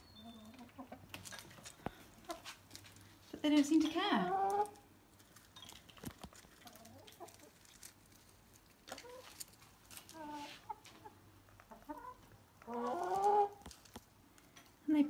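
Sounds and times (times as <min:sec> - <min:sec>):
hens clucking softly: 0:10.1 - 0:13.6.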